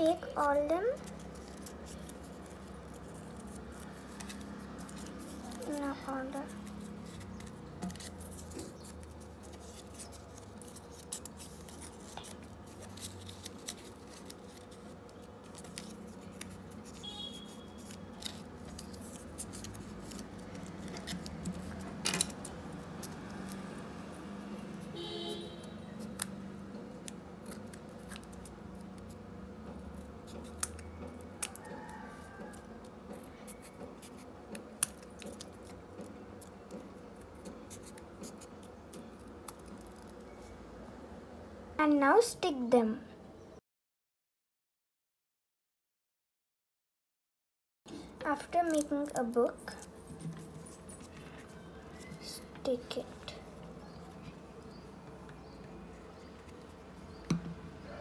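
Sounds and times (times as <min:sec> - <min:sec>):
scissors snipping paper: 0:00.4 - 0:25.0, 0:25.6 - 0:40.2, 0:48.3 - 0:53.0.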